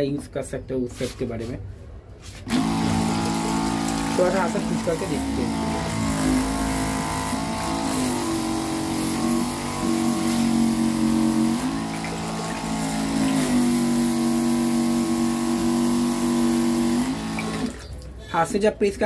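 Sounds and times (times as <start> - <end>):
diaphragm pump humming: 2.4 - 18.2
water hissing from spray: 7.9 - 15.4.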